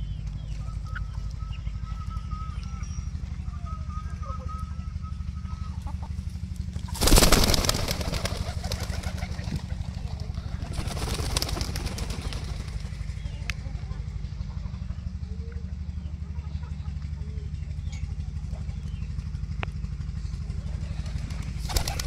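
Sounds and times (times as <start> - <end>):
low engine hum: 0.0 - 22.0
pigeons flapping wings: 6.8 - 13.1, 20.8 - 22.0.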